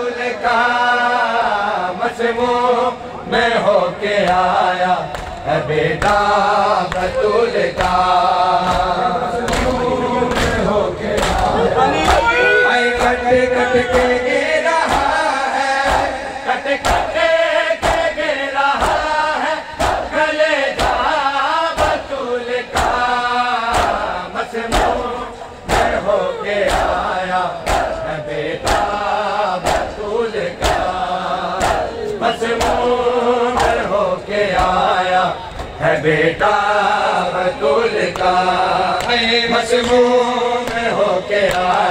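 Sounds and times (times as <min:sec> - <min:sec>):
men chanting together: 0:00.0 - 0:41.9
chest-beating slaps: 0:30.6 - 0:30.9.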